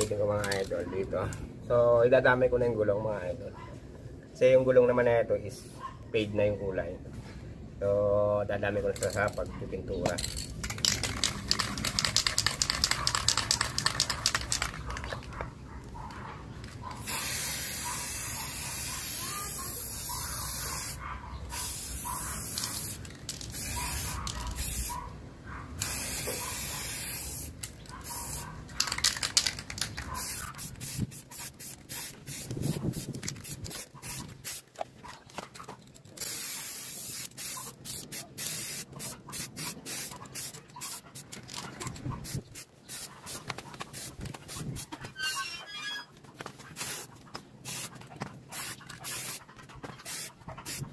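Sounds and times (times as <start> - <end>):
spray can ball rattling: 10.1 - 15.4, 16.6 - 21.0, 21.6 - 24.9, 25.8 - 34.8, 36.0 - 45.4, 46.7 - 50.9
spray can hissing: 10.6 - 15.2, 17.0 - 24.9, 25.8 - 34.7, 36.2 - 41.4, 42.2 - 44.9, 46.8 - 47.9, 48.5 - 49.4, 50.0 - 50.9.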